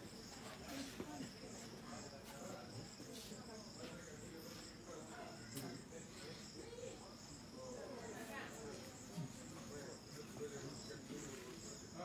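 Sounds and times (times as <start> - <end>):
faint voices murmuring: 0.0 - 12.0
insects trilling: 0.0 - 12.0.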